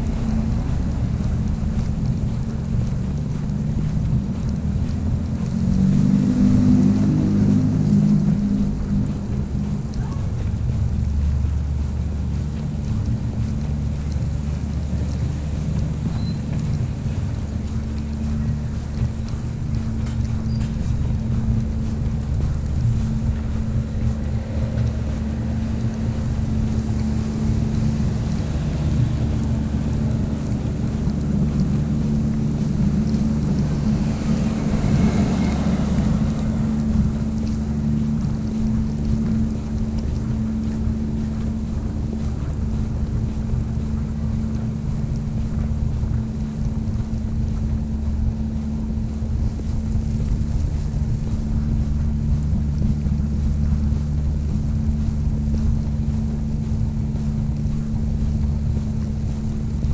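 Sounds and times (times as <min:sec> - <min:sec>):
steady low rumble: 0:00.0 - 0:59.9
snowstorm wind hissing: 0:21.2 - 0:44.9.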